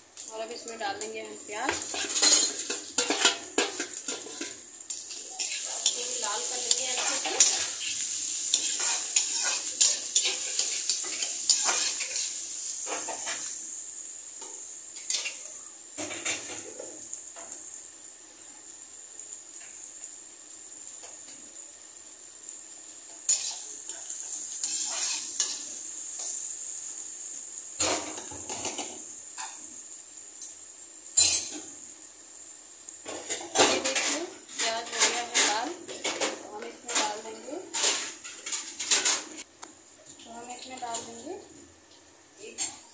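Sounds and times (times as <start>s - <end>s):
onions sizzling in oil: 0.0s - 42.9s
spatula scraping and clinking pan: 1.7s - 7.9s, 8.5s - 13.5s, 23.3s - 25.6s.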